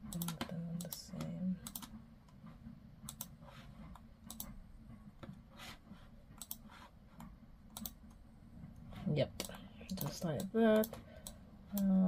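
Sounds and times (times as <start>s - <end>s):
low steady hum: 0.0s - 12.0s
computer mouse clicks: 0.1s - 4.6s, 5.2s - 8.2s, 9.3s - 12.0s
soft rubbing sounds: 2.4s - 4.1s, 4.9s - 7.4s, 8.6s - 9.3s.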